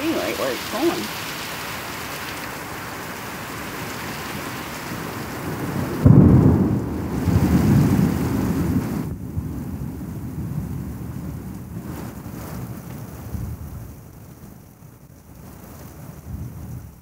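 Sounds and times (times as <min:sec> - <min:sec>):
heavy rain: 0:00.0 - 0:17.0
rolling thunder: 0:03.8 - 0:14.6, 0:15.4 - 0:17.0.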